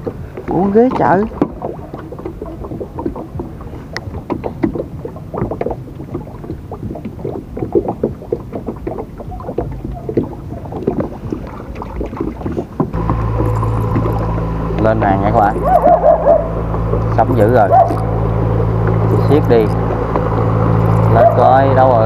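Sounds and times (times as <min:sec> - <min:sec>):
small knocks: 0:00.0 - 0:14.9
water sloshing and splashing: 0:00.0 - 0:22.0.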